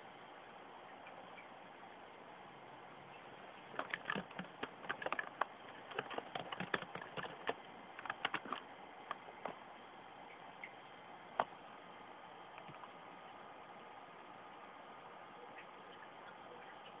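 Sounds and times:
faint steady hiss: 0:00.0 - 0:17.0
keyboard key clicks: 0:03.8 - 0:09.6.

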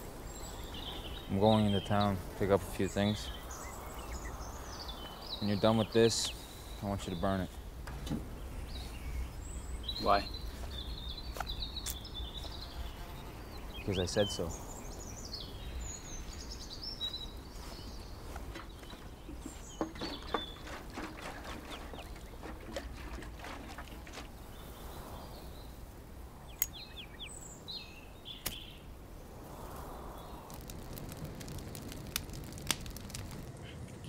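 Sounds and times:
birds chirping: 0:00.0 - 0:29.0, 0:30.1 - 0:34.0
sharp clicks: 0:26.6 - 0:26.8, 0:30.5 - 0:33.5.

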